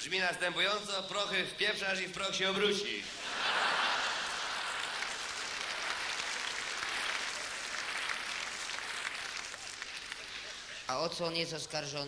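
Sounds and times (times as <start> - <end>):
audience applauding: 3.3 - 10.9.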